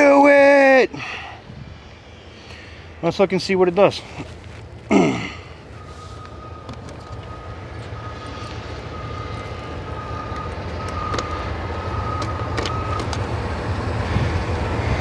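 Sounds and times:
vehicle engine rumble: 0.0s - 15.0s.

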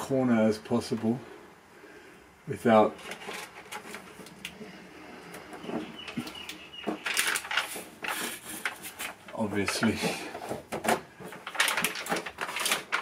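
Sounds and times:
paper backing crackling and rustling: 2.8s - 13.0s.

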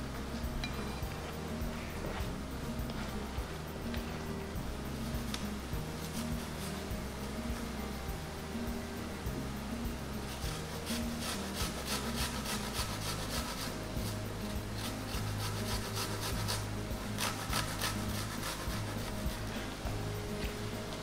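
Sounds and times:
garlic rasping on metal grater: 10.3s - 13.8s, 14.8s - 16.6s, 17.2s - 19.2s.

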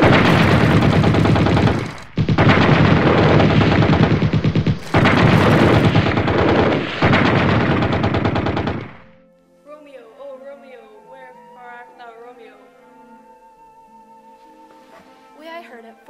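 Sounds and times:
machine-gun fire: 0.0s - 9.2s.

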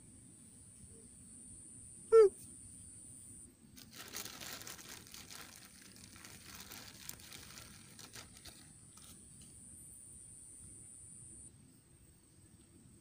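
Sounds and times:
plastic bag crinkling: 3.8s - 9.1s.

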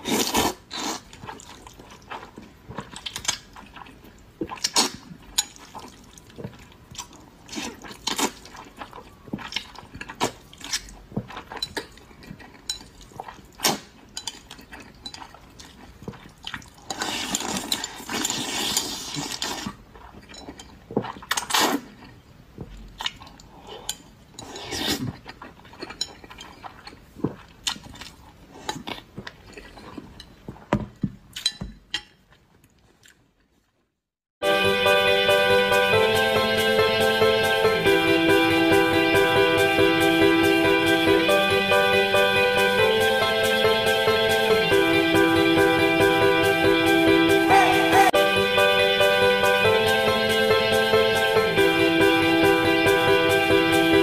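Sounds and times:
person slurping noodles: 0.0s - 2.3s, 16.5s - 20.1s, 21.0s - 21.9s, 23.5s - 25.2s.

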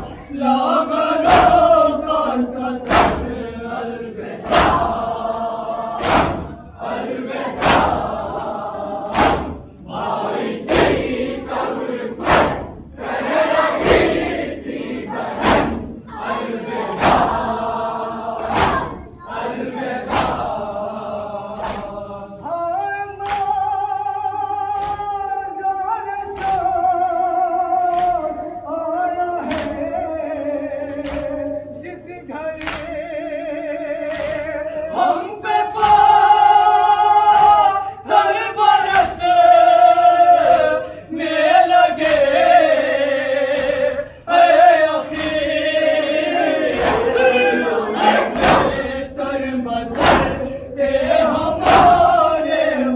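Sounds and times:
men singing mournful lament: 0.0s - 9.3s, 19.4s - 52.9s
hands striking chests: 9.1s - 9.7s.

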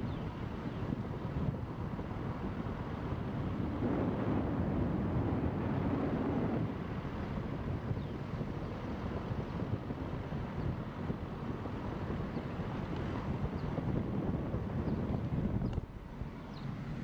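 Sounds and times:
wind buffeting microphone: 0.0s - 17.0s
car driving rumble: 12.4s - 17.0s.

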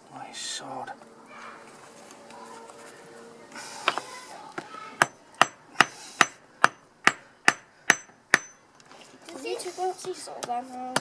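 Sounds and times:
hammer striking hot steel on anvil: 5.0s - 8.6s.

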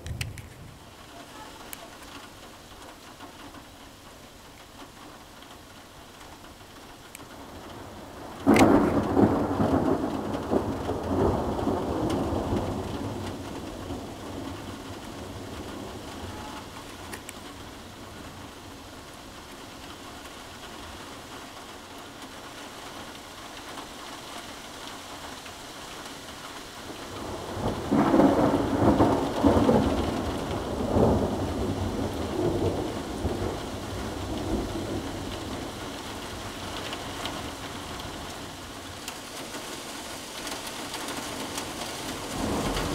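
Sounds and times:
steady rain: 0.0s - 42.9s
thunder rumbling: 7.4s - 20.8s, 26.5s - 39.2s, 41.0s - 42.9s.

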